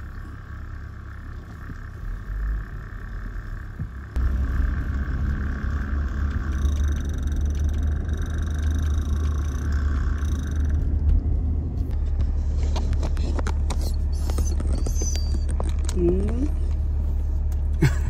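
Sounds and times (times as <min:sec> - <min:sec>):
engine and road rumble: 0:00.0 - 0:18.0.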